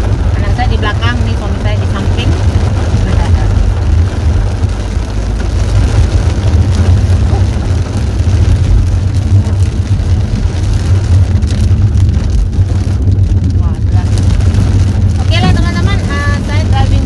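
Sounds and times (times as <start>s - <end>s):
car engine and tyres rumbling: 0.0s - 17.0s
rain noise: 0.0s - 17.0s.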